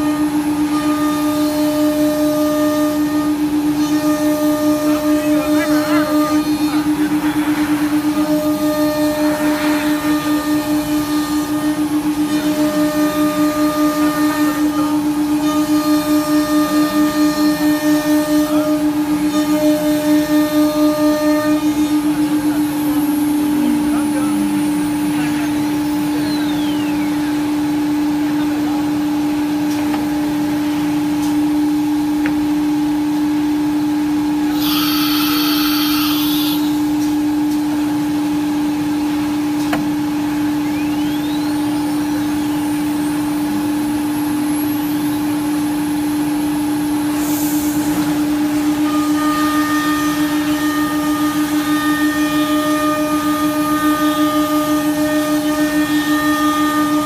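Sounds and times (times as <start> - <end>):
wood router spindle whine: 0.0 - 28.6, 34.3 - 37.0, 47.8 - 57.0
dust extraction running: 0.0 - 57.0.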